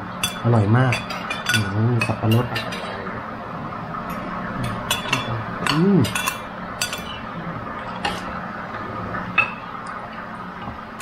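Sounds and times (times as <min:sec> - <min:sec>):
cutlery clinking on plates: 0:00.2 - 0:03.0, 0:04.1 - 0:07.2
person humming: 0:05.3 - 0:06.2.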